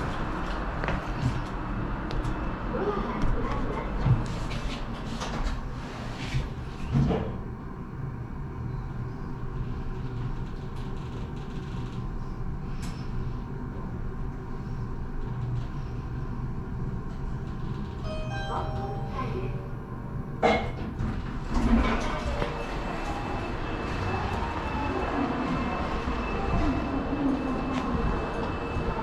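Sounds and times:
elevator humming: 0:16.3 - 0:29.0
elevator doors closing: 0:17.4 - 0:19.6, 0:20.4 - 0:29.0.

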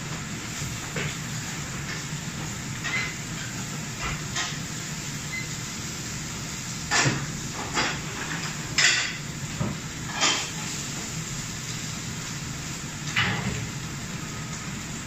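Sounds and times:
gas range and extractor hum: 0:00.0 - 0:15.0.

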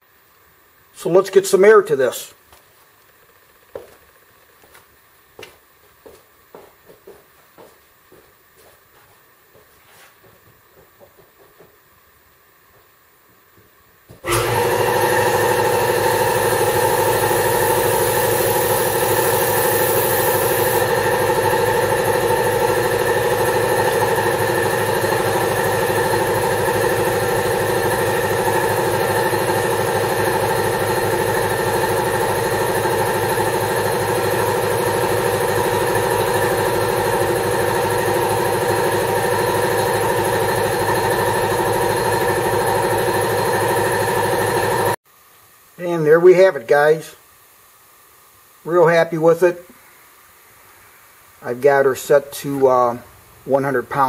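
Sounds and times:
air compressor running: 0:14.1 - 0:45.0
high air hiss: 0:48.6 - 0:53.5.

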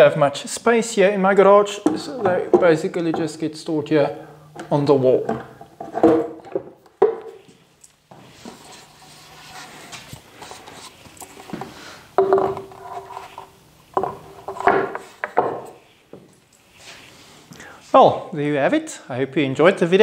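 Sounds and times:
wooden knocks and clunks: 0:04.6 - 0:07.4, 0:11.5 - 0:12.7, 0:13.9 - 0:16.3
shuffling: 0:07.3 - 0:12.0, 0:16.2 - 0:18.1.

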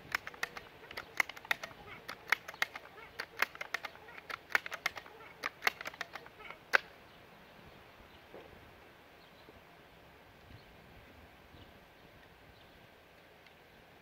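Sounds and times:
air rifle pump lever clacking: 0:00.0 - 0:06.9
light clicks: 0:00.0 - 0:06.9.

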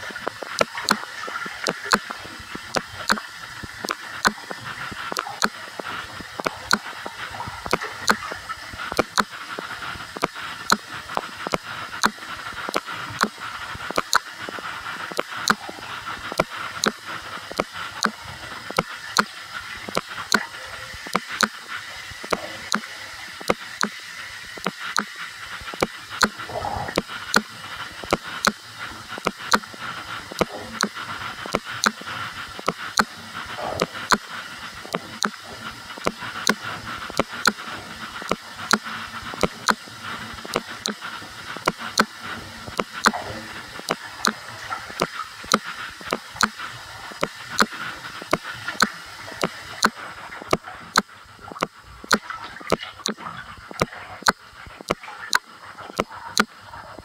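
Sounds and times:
sharp regular clicks: 0:00.0 - 0:57.0
tap water running into bathtub: 0:00.0 - 0:57.0.

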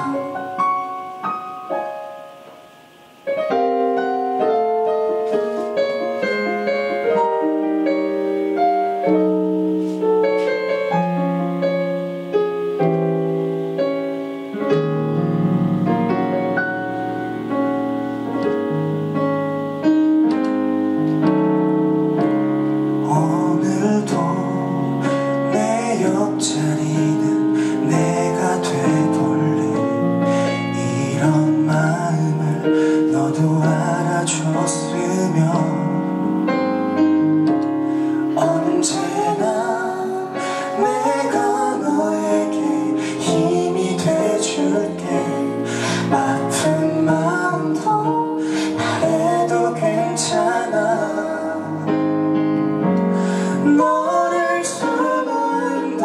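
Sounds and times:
person singing: 0:00.0 - 0:01.2, 0:22.2 - 0:36.4, 0:37.5 - 0:52.1, 0:53.0 - 0:56.0
slow piano chords: 0:00.0 - 0:56.0.

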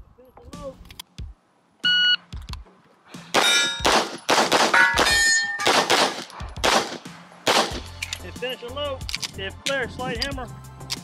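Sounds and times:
steel targets clanging: 0:03.3 - 0:06.3
pistol shots: 0:03.3 - 0:07.9.

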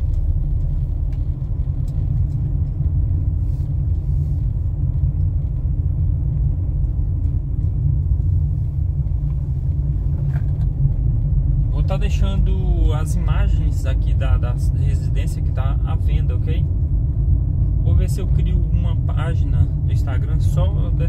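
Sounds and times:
car driving low rumble: 0:00.0 - 0:21.0.

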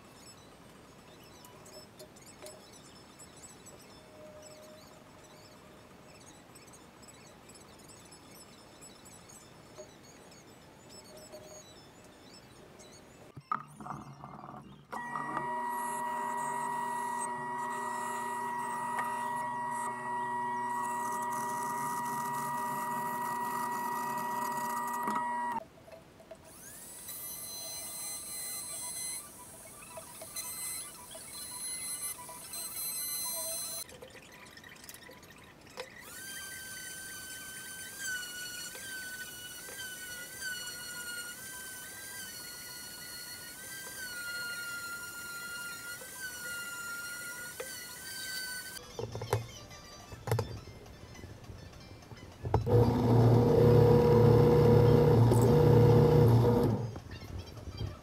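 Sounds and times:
bandsaw running: 0:15.0 - 0:25.6, 0:52.6 - 0:57.0
orbital sander whining: 0:15.0 - 0:25.6, 0:52.6 - 0:57.0.

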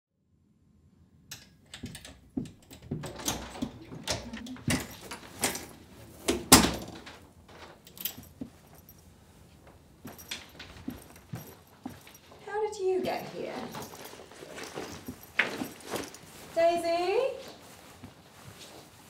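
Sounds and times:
door opening: 0:01.3 - 0:08.8
keys rattling in a lock: 0:01.3 - 0:16.6.

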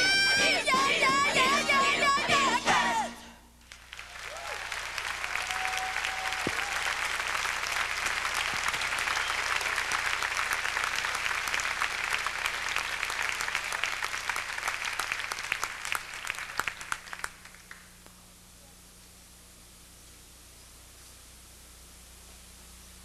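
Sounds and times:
audience applauding: 0:03.6 - 0:17.9.

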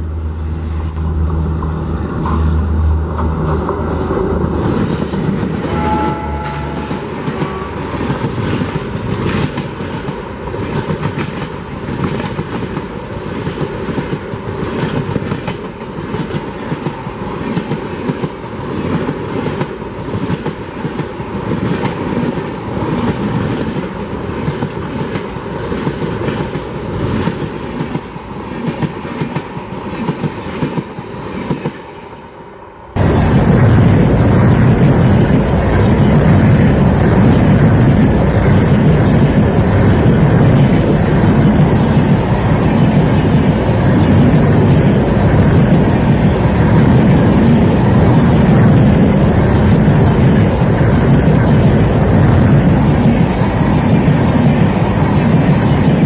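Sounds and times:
train rumble: 0:00.0 - 0:56.0
train horn: 0:05.6 - 0:08.7
wind on microphone: 0:33.0 - 0:56.0.

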